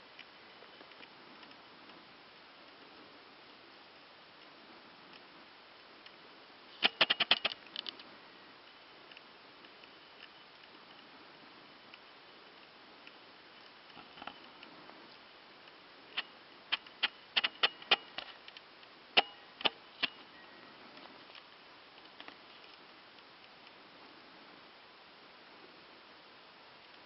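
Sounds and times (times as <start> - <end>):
faint hiss: 0.0 - 27.0
sharp ringing clicks: 6.8 - 7.6, 16.2 - 18.2, 19.2 - 20.2.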